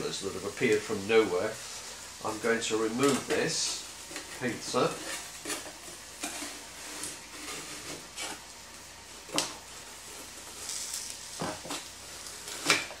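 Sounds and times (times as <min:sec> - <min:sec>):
metal spatulas scraping: 0:03.0 - 0:08.4.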